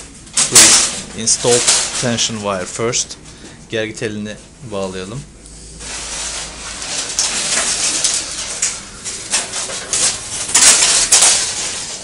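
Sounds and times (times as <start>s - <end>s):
wire scraping against metal posts: 0.0s - 3.1s, 5.6s - 12.0s.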